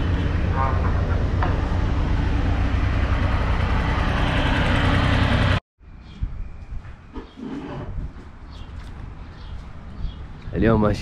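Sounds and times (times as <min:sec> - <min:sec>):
motorcycle engine running: 0:00.0 - 0:05.6
wind and road noise: 0:00.0 - 0:11.0.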